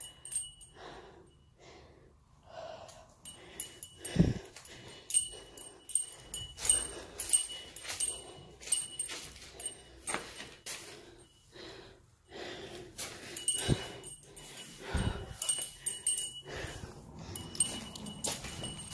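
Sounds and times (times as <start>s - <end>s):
light metallic jingle: 0.0s - 1.6s, 2.5s - 18.9s
footsteps crunching over debris: 17.5s - 18.9s.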